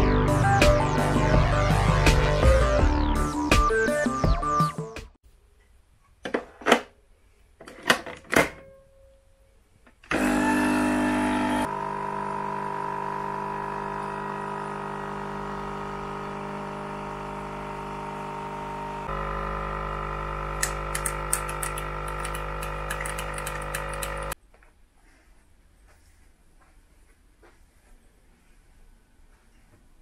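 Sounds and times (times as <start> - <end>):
coffee machine pump humming: 10.1 - 24.4.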